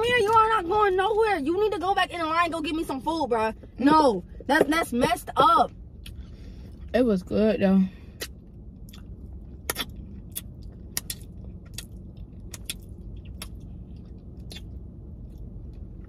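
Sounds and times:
low steady hum: 0:00.0 - 0:16.0
person chewing and lip smacking: 0:05.9 - 0:06.9, 0:08.2 - 0:16.0.

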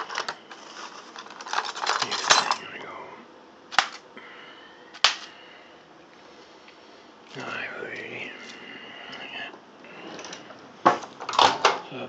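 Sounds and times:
cutlery rattling in a drawer: 0:00.0 - 0:02.6
scissors snipping plastic film: 0:03.7 - 0:04.0, 0:05.0 - 0:05.3.

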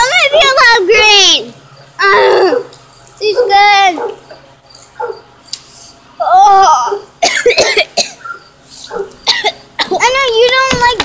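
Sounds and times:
child wavering voiced sound: 0:02.0 - 0:04.0, 0:06.2 - 0:07.1.

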